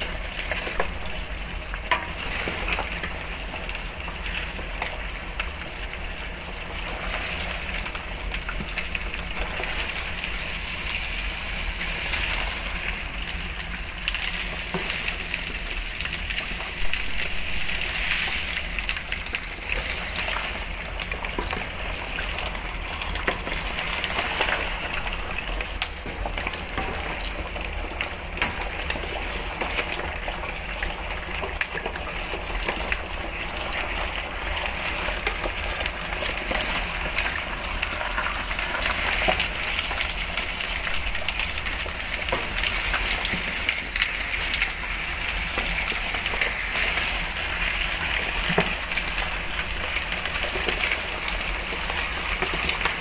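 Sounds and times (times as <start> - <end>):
vegetables sizzling in hot oil: 0.0 - 53.0.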